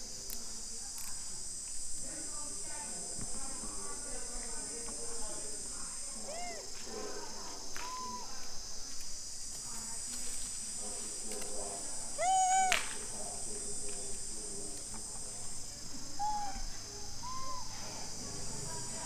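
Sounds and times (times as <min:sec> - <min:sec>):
high-pitched insect drone: 0:07.7 - 0:09.4, 0:12.1 - 0:14.3, 0:15.5 - 0:19.0
animal call: 0:12.2 - 0:12.9, 0:16.2 - 0:17.8.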